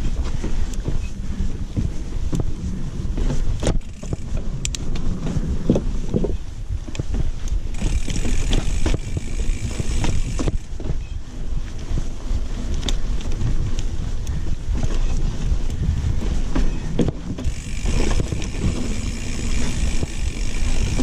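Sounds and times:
bike rattling over bumps: 0.0s - 21.0s
bike tyres rumbling on dirt: 0.0s - 21.0s
wind buffeting microphone: 0.0s - 21.0s.

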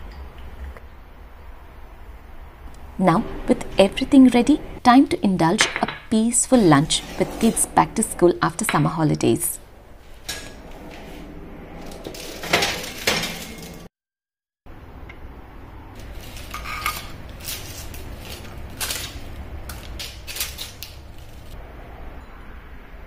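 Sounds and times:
metal baking tray clanking: 11.8s - 13.9s.

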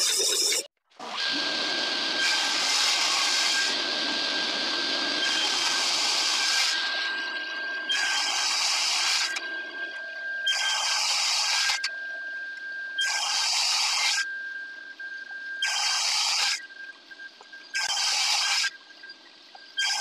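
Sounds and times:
table saw cutting wood: 0.0s - 11.9s, 13.0s - 14.2s, 15.6s - 16.6s, 17.8s - 18.7s.

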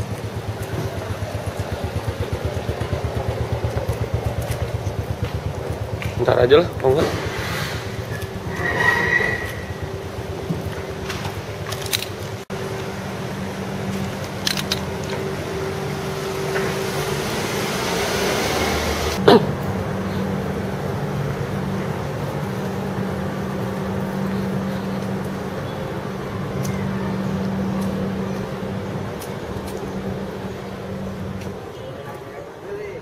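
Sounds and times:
air conditioner units humming: 9.6s - 31.8s.

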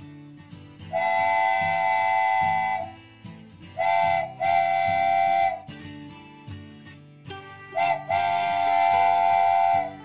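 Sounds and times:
strummed guitar music: 0.0s - 10.0s
train horn blasts: 0.9s - 3.0s, 3.8s - 5.7s, 7.8s - 10.0s.

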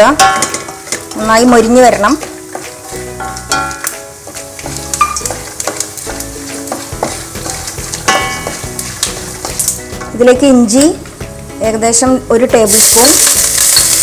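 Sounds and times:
background music: 0.0s - 14.0s
nuts sizzling in oil: 0.0s - 14.0s
wooden spatula scraping a pan: 0.4s - 3.5s, 4.2s - 9.9s.

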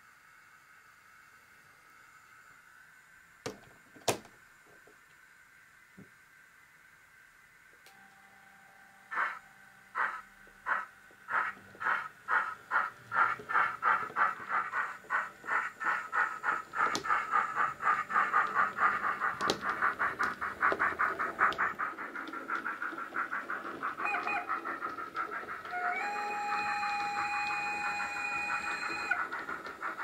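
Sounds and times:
model steam locomotive chuffs: 7.1s - 30.0s.

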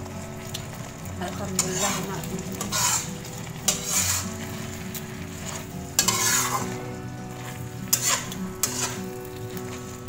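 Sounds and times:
sauce sizzling: 0.0s - 10.0s
spatula scraping a wok: 1.4s - 10.0s.

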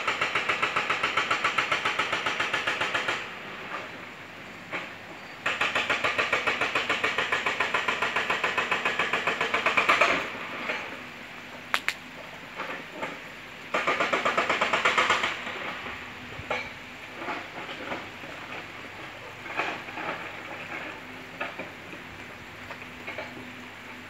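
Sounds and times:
sharp click: 11.7s - 12.0s.

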